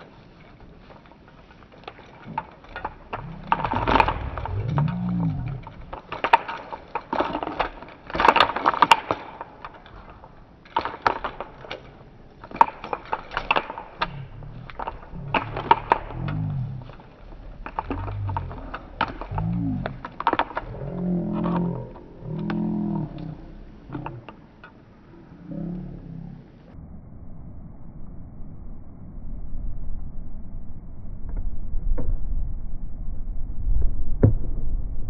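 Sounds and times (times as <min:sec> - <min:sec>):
clattering and scraping on pole: 0:00.0 - 0:24.9
wolf growling: 0:02.2 - 0:08.6, 0:11.1 - 0:26.8.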